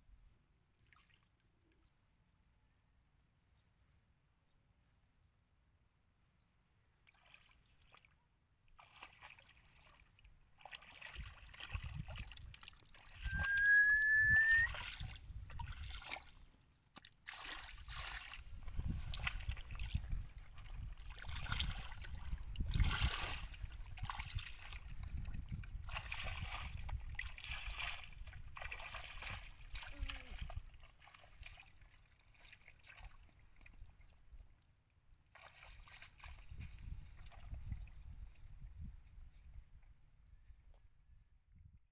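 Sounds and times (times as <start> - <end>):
feet sloshing through water: 7.0 - 13.6, 14.4 - 34.5, 35.3 - 39.4
rising whistle-like tone: 13.2 - 14.8.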